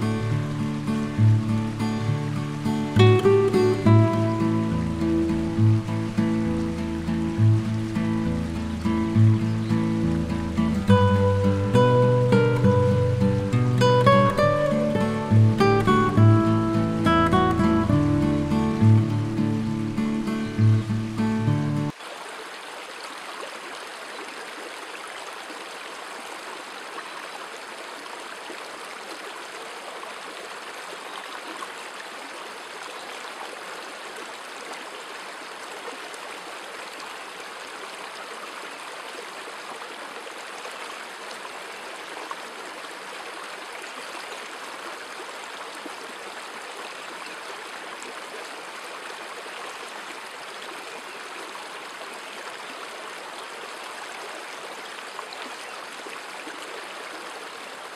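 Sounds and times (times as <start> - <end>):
stream flowing water: 0.0 - 57.9.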